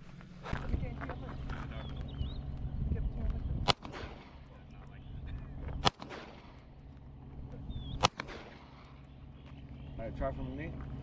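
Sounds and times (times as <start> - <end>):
gunshots with echo: 3.6 - 4.5, 5.8 - 6.7, 8.0 - 9.0.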